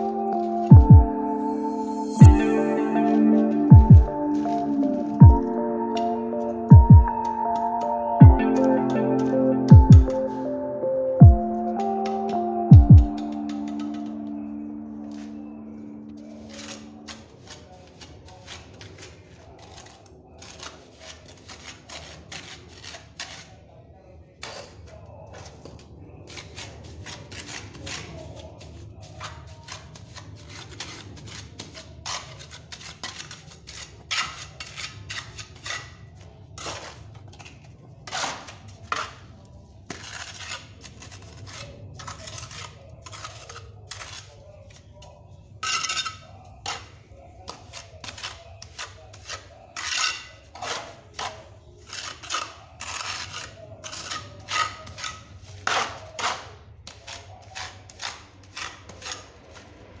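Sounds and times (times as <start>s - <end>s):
trowel scraping mortar on wall: 16.3s - 23.7s, 24.4s - 59.8s.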